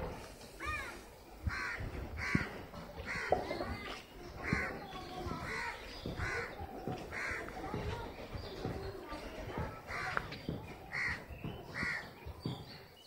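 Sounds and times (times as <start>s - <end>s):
crow cawing: 1.5s - 2.5s.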